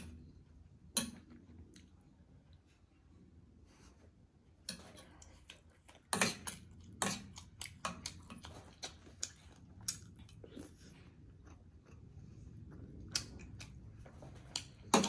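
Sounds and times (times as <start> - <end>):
chewing with wet mouth smacks: 4.8 - 14.9.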